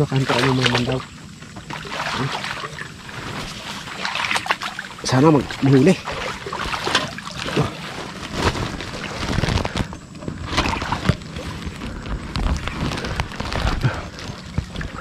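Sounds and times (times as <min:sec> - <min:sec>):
tall grass rustling: 0:00.2 - 0:15.0
plastic sheet rubbing microphone: 0:03.0 - 0:04.0, 0:07.6 - 0:15.0.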